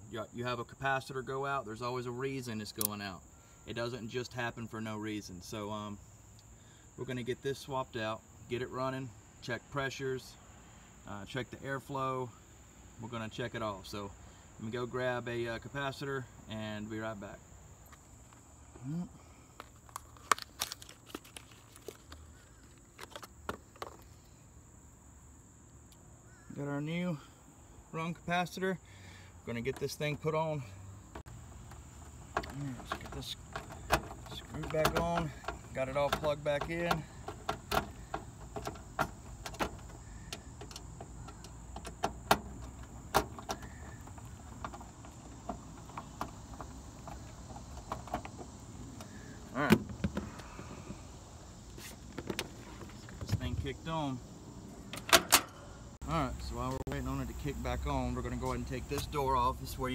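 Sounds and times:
crickets trilling: 0:00.0 - 0:59.9
handling clicks and rustling: 0:19.5 - 0:24.2, 0:31.1 - 0:50.6, 0:54.8 - 0:55.6.

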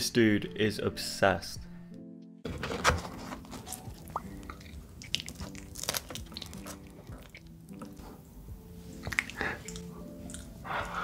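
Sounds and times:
wet sticky dipping sounds: 0:03.8 - 0:08.0, 0:09.0 - 0:10.6.

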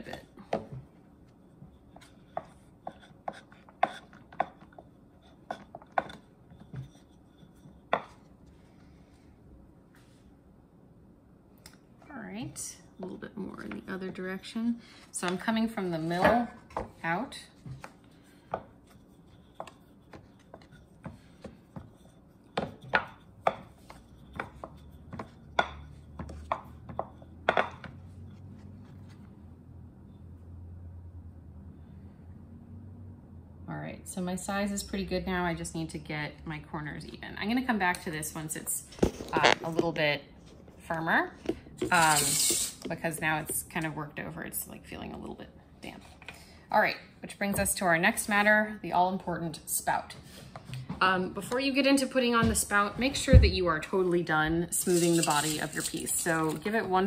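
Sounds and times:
rolling pin rolling clay: 0:00.0 - 0:08.6, 0:15.1 - 0:29.2, 0:39.0 - 0:43.9, 0:54.7 - 0:57.0
rolling pin knocking on wooden board: 0:22.6 - 0:28.0.

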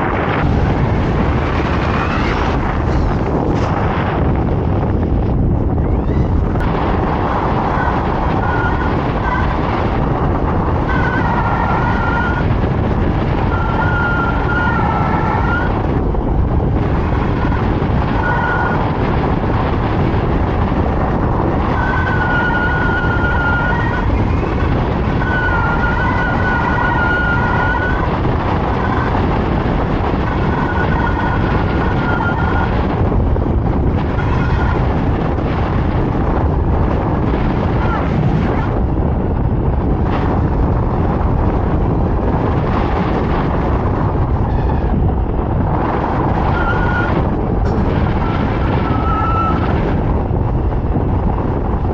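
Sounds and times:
wind rush over microphone: 0:00.0 - 0:51.9
high whistling tone: 0:10.8 - 0:12.5, 0:13.4 - 0:15.8, 0:21.7 - 0:28.2, 0:30.2 - 0:32.7, 0:46.2 - 0:47.2, 0:48.1 - 0:49.7.

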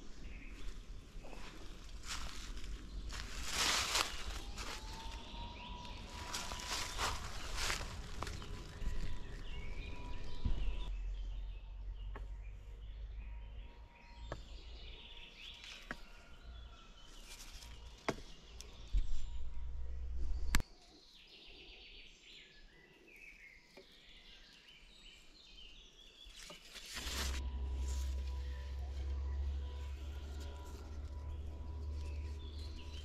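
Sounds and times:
low microphone rumble: 0:00.0 - 0:14.2, 0:18.8 - 0:20.6, 0:27.0 - 0:33.0
birds chirping and calling: 0:00.0 - 0:26.4, 0:27.2 - 0:33.0.

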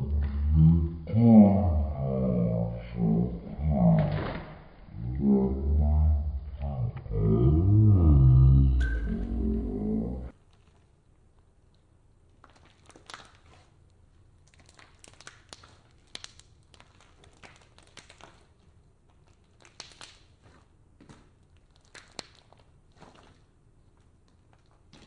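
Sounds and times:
slime squishing and clicking: 0:14.4 - 0:25.0.

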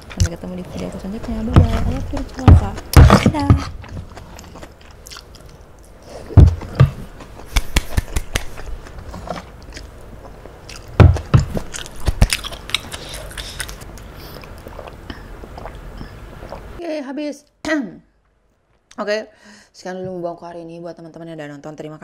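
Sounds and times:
chewing and biting food: 0:00.0 - 0:16.8.

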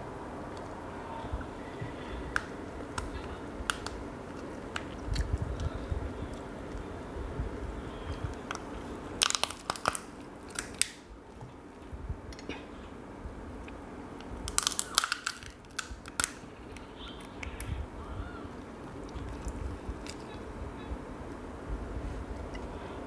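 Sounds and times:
lobster shell cracking: 0:02.3 - 0:05.7, 0:08.3 - 0:11.0, 0:14.4 - 0:16.9.

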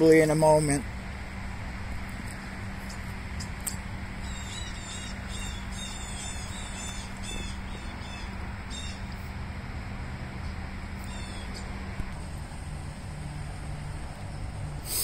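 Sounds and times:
steady low hum: 0:00.0 - 0:15.0
small bird chirping: 0:04.2 - 0:09.1.

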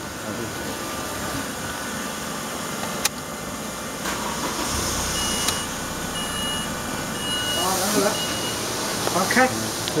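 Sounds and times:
starter cranking engine: 0:04.0 - 0:07.3
hiss with low hum: 0:04.0 - 0:10.0.

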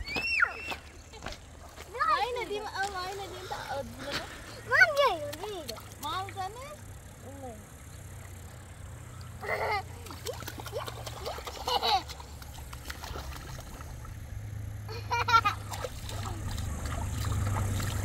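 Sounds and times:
rushing river water: 0:15.6 - 0:18.0.

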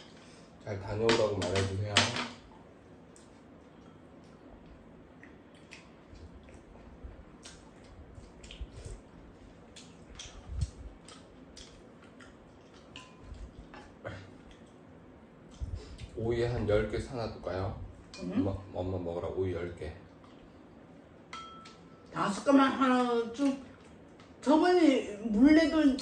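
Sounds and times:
chewing and sipping: 0:03.0 - 0:16.2
spoons tapping bowls: 0:21.3 - 0:22.0.

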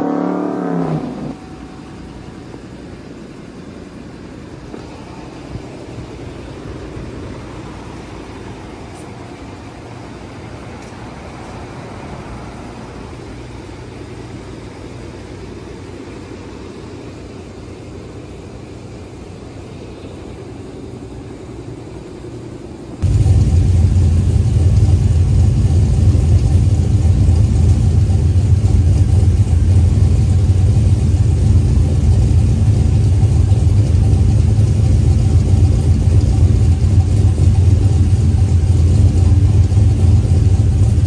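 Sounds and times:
engine idling with deep rumble: 0:00.9 - 0:41.0
steady hiss: 0:01.3 - 0:27.2.

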